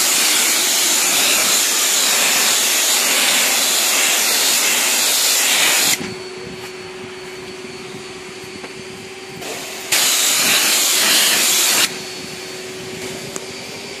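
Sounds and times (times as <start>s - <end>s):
pressure washer spraying water: 0.0s - 6.1s, 9.4s - 14.0s
steady hum: 0.0s - 14.0s.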